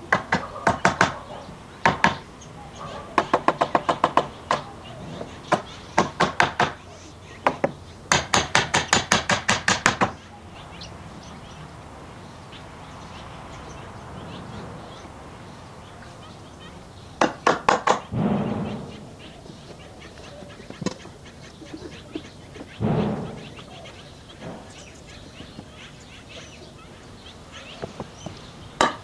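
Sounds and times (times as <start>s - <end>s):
hammer knocking on wood: 0.1s - 1.2s, 1.8s - 2.2s, 3.2s - 4.7s, 5.5s - 6.8s, 7.4s - 10.2s, 17.2s - 18.9s, 27.8s - 29.0s.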